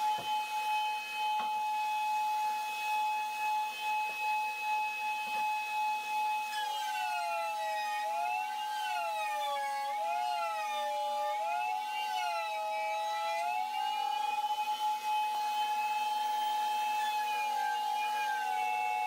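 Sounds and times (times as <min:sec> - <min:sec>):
router motor whining: 0:00.0 - 0:19.0.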